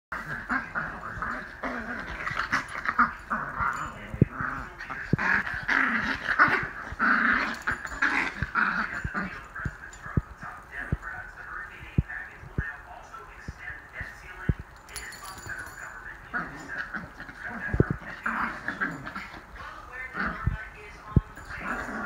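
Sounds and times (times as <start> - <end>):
small dogs growling: 0.1 - 11.1, 15.2 - 22.0.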